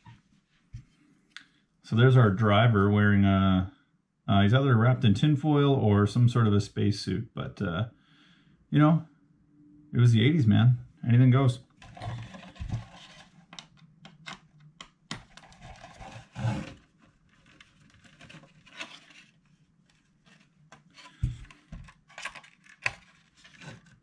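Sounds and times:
hands handling plastic car body: 0:11.7 - 0:24.0.

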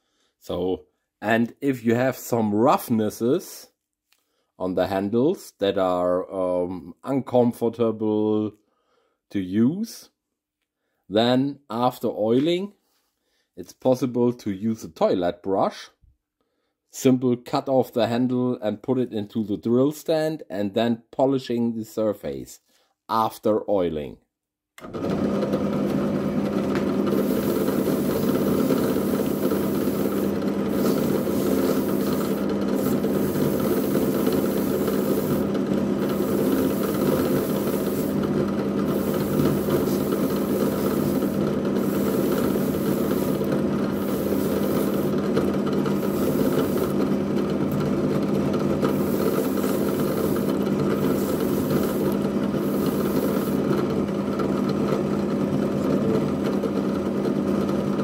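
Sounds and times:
drill press motor humming: 0:24.8 - 0:56.8
bristles hissing on wood: 0:27.1 - 0:38.3, 0:38.9 - 0:45.2, 0:45.9 - 0:47.0, 0:48.9 - 0:53.6.

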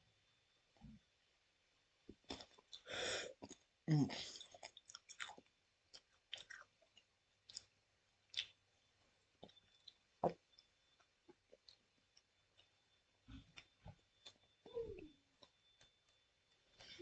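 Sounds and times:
chewing with mouth clicks: 0:04.4 - 0:08.6, 0:09.4 - 0:10.7.

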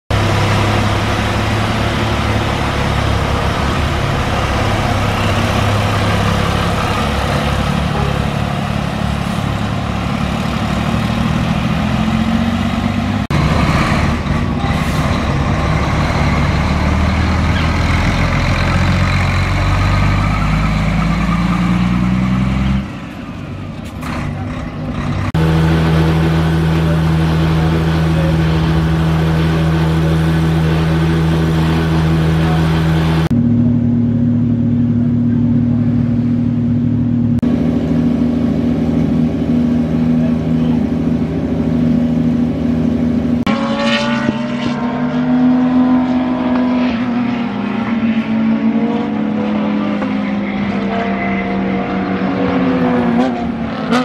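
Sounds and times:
diesel engines idling: 0:00.1 - 0:43.5
higher-pitched engine hum: 0:24.3 - 0:54.0.

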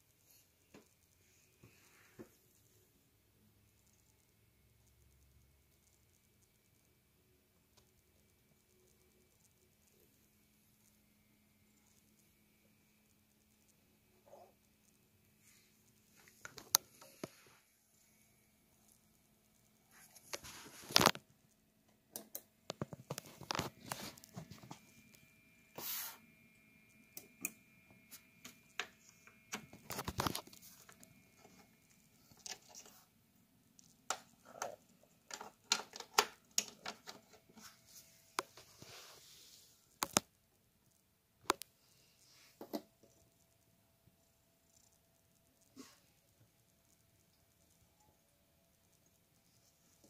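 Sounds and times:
hands handling plastic device: 0:20.2 - 0:21.2, 0:22.2 - 0:24.8, 0:28.4 - 0:31.7, 0:34.1 - 0:37.7.

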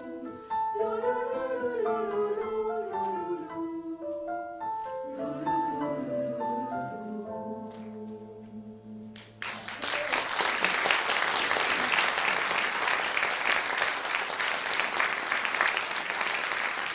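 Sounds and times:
audience applause: 0:09.4 - 0:16.9.

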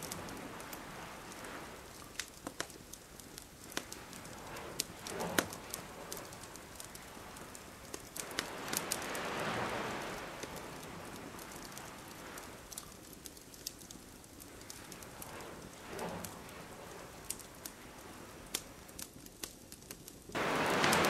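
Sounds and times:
campfire crackling and popping: 0:00.0 - 0:21.0
wave washing up beach: 0:03.8 - 0:12.8, 0:20.4 - 0:21.0.

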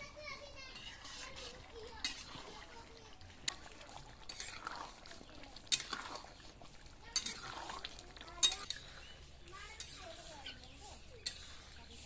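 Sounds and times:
liquid sloshing in a wok: 0:00.6 - 0:12.0
metal spatula clinking on pan: 0:00.7 - 0:02.4, 0:07.1 - 0:07.5, 0:08.4 - 0:08.9, 0:09.7 - 0:10.0, 0:11.2 - 0:11.6.

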